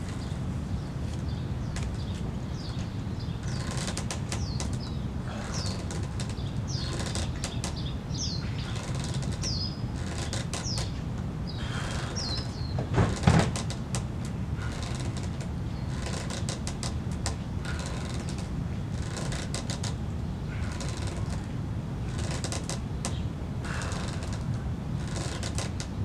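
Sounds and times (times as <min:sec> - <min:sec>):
bird chirping high falling calls: 0:10.6 - 0:12.8.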